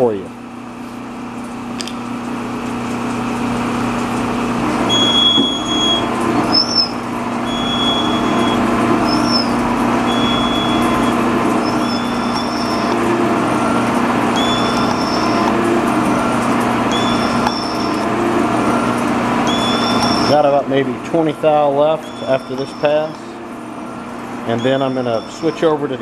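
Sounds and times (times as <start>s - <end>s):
steady motor hum: 0.0s - 26.0s
short high squeal: 4.9s - 13.0s, 13.6s - 15.5s, 16.1s - 18.1s, 19.5s - 20.4s, 24.0s - 25.8s.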